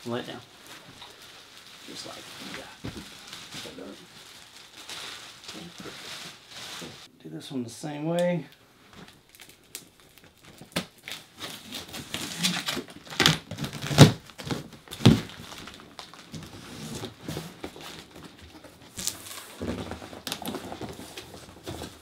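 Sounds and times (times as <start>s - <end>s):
cardboard rustling and scraping: 5.5s - 7.1s, 11.4s - 22.0s.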